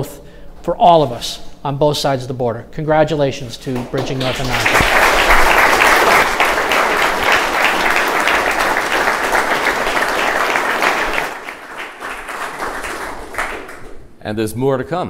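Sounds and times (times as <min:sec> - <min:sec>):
audience applauding: 0:03.7 - 0:14.1.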